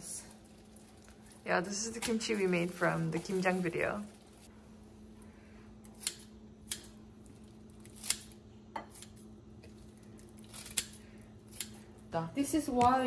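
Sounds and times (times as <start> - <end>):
faint steady hum: 0.0 - 13.0
scissors snipping cabbage: 1.6 - 3.7, 5.8 - 7.0, 7.8 - 9.2, 10.4 - 11.8.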